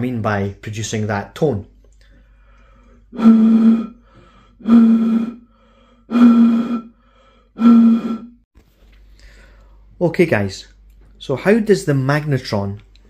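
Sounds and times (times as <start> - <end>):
blowing across bottle mouth: 3.0 - 8.4.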